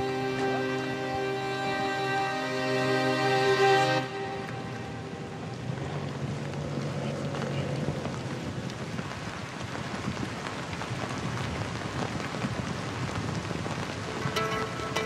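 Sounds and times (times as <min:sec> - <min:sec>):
steady rain hiss: 0:00.0 - 0:15.0
raindrops ticking: 0:04.0 - 0:15.0.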